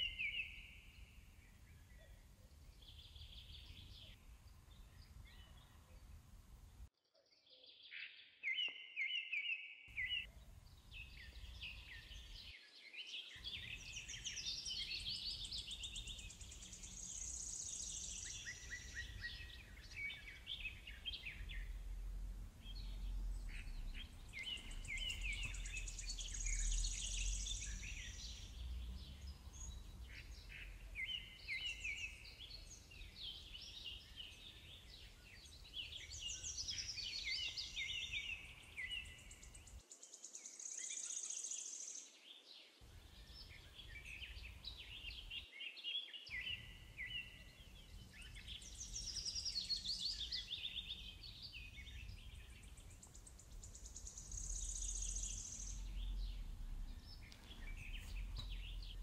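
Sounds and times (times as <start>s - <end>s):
birds singing and chirping: 0.0s - 5.8s, 8.4s - 42.0s, 42.9s - 59.0s
faint low rumble: 18.8s - 31.4s, 51.8s - 59.0s.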